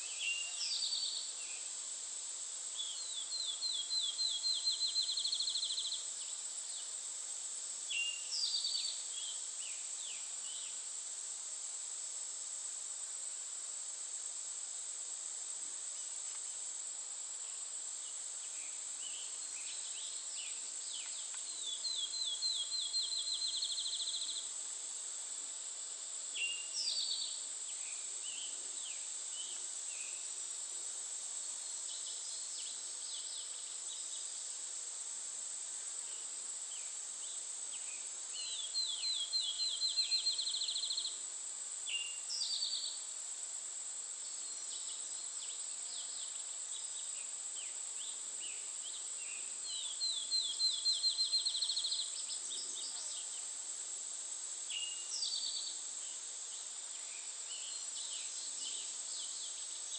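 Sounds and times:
insects droning: 0.0s - 59.9s.

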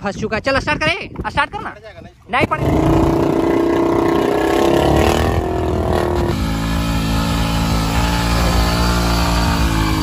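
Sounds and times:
motorcycle engine at high revs: 2.4s - 10.0s
wheel spinning in wet mud: 2.5s - 10.0s.

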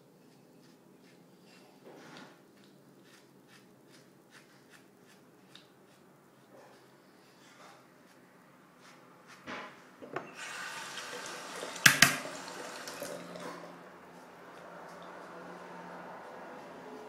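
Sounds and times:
tap water running into sink: 10.4s - 13.6s
sharp knocks: 11.9s - 12.2s.

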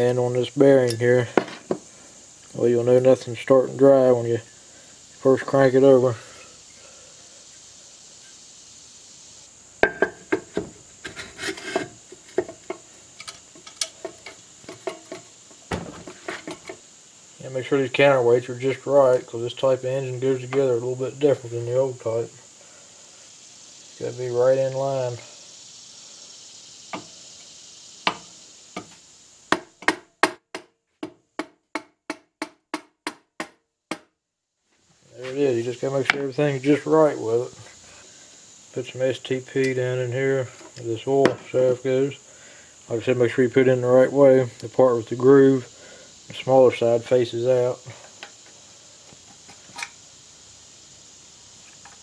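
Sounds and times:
metal clunks taps and scrapes: 0.8s - 1.9s, 9.8s - 16.8s, 40.5s - 41.5s.

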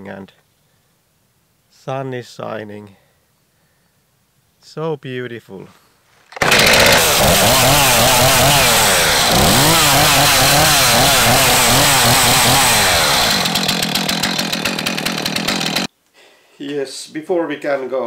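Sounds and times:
chainsaw engine revving: 6.4s - 15.9s.

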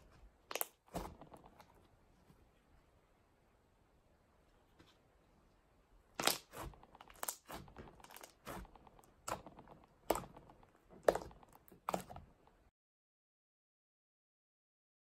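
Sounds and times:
slime squished by hand: 0.0s - 1.7s, 6.2s - 12.4s.

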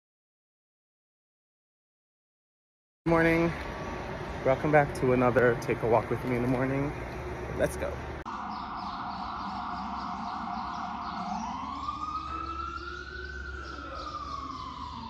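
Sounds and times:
emergency vehicle siren wailing: 8.2s - 15.0s.

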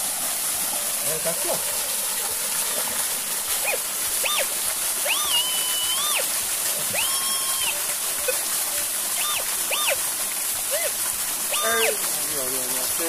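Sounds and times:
metal detector tones: 3.6s - 6.3s, 6.9s - 8.4s, 9.2s - 10.0s, 11.5s - 12.0s.

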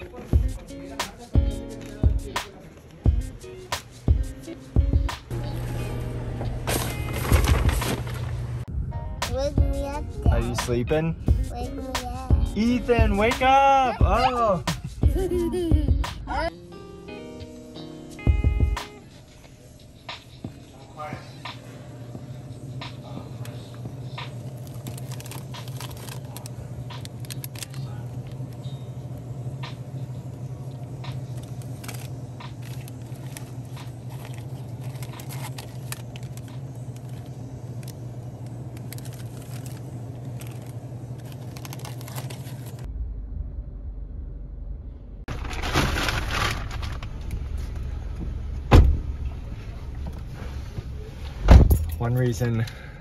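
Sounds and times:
low rumble inside a car: 4.8s - 16.5s, 19.4s - 53.0s
paper packages crinkling: 6.7s - 8.6s, 24.3s - 28.6s, 31.1s - 42.9s, 45.3s - 47.4s
low hum: 21.8s - 52.0s
loud rustling: 45.3s - 47.1s.

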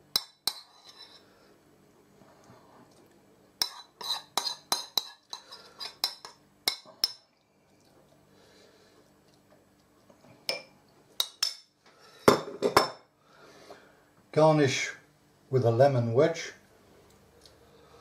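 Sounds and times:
teaspoon clinking against dishes: 3.6s - 7.3s.

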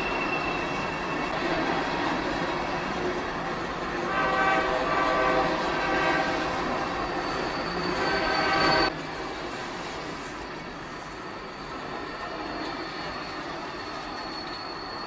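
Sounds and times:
train rumbling: 0.0s - 15.0s
train horn: 4.0s - 7.1s, 7.9s - 8.9s.

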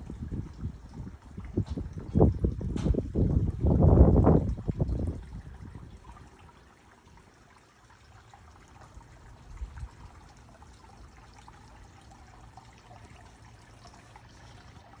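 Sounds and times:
trickling water: 0.0s - 15.0s.

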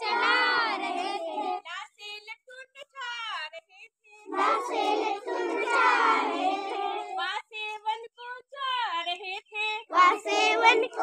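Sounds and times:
children singing in unison: 0.0s - 1.6s, 4.3s - 7.2s, 9.9s - 11.0s.

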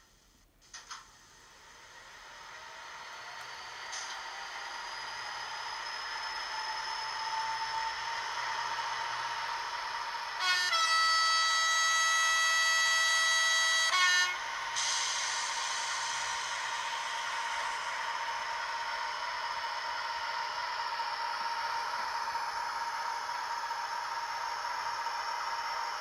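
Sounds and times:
model locomotive running sound: 0.0s - 26.0s
locomotive horn blast: 10.4s - 14.9s.

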